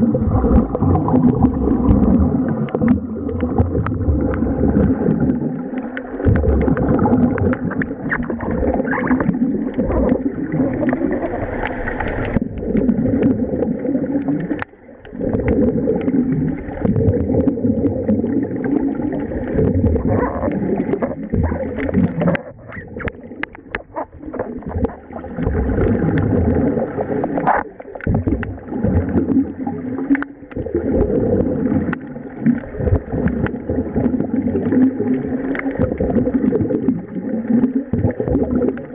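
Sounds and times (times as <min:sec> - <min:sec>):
underwater air bubbles gurgling: 0:00.0 - 0:38.9.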